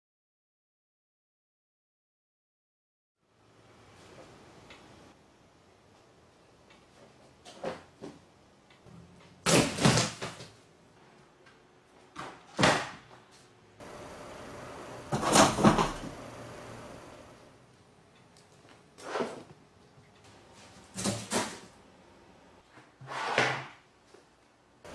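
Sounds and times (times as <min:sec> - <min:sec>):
cat scraping and knocking boxes: 0:23.0 - 0:23.7.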